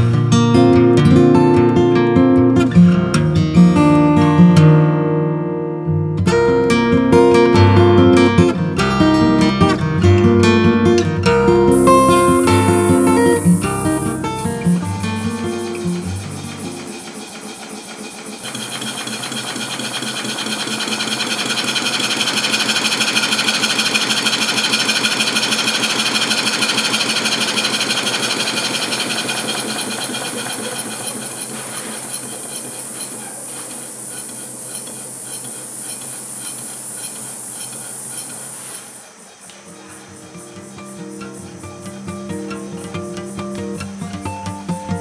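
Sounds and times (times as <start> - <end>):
hiss of escaping air: 11.7 - 24.3, 27.0 - 40.1
model steam engine running: 11.7 - 43.9.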